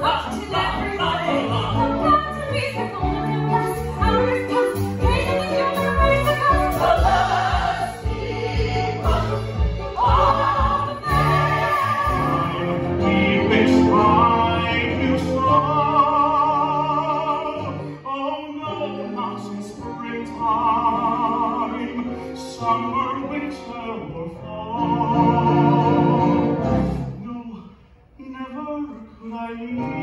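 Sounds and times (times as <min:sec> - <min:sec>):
singer with wide vibrato: 0:00.0 - 0:13.8
orchestra accompaniment: 0:00.0 - 0:27.2.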